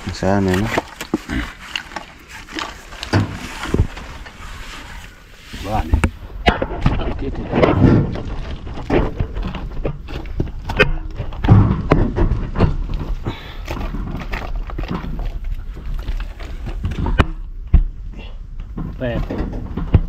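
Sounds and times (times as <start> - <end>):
cargo knocking and rattling: 5.8 - 20.0.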